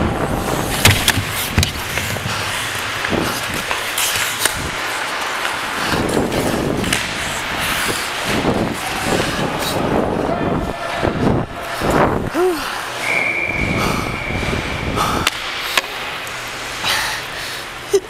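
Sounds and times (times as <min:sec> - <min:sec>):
skates scraping ice: 0:00.1 - 0:10.3
hockey sticks and puck clacking: 0:00.3 - 0:09.8, 0:15.2 - 0:16.8.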